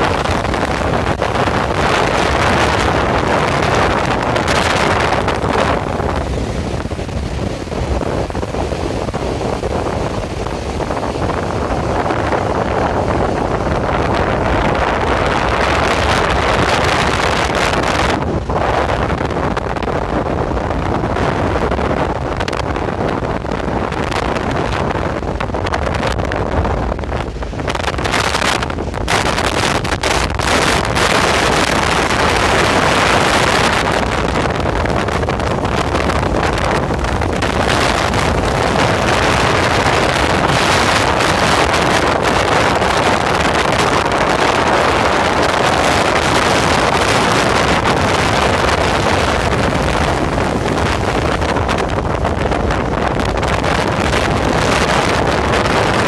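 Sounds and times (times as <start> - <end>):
surf breaking on beach: 0.0 - 56.0
wind buffeting microphone: 0.0 - 56.0.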